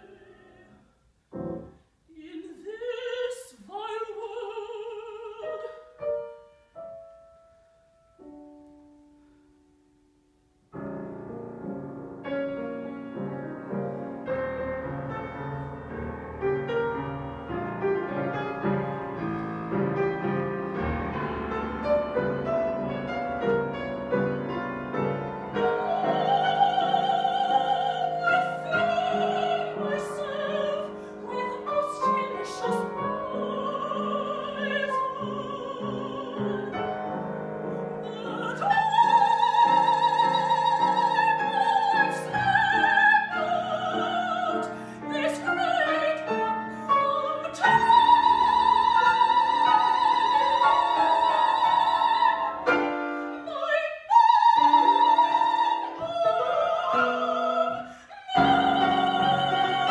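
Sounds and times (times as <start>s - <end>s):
soprano singing with vibrato: 0.0s - 0.9s, 2.1s - 6.4s, 23.4s - 59.9s
grand piano: 0.0s - 59.9s.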